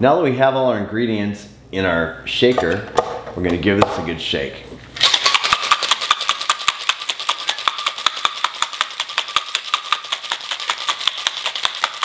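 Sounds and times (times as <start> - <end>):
ice rattling in cocktail shaker: 5.0 - 12.0.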